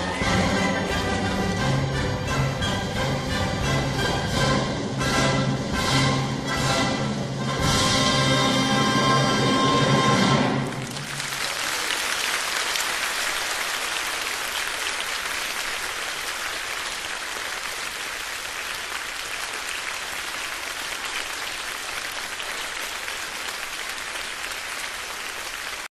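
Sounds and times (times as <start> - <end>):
audience applauding: 10.4 - 25.9.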